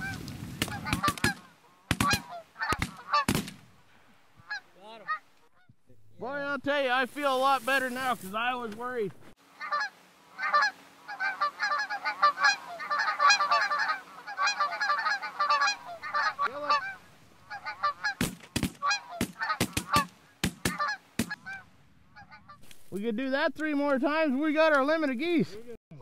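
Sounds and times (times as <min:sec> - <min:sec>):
geese honking: 0:00.0 - 0:03.4, 0:04.4 - 0:05.8, 0:09.4 - 0:22.7
shotgun shots: 0:00.6 - 0:03.7, 0:18.2 - 0:21.4.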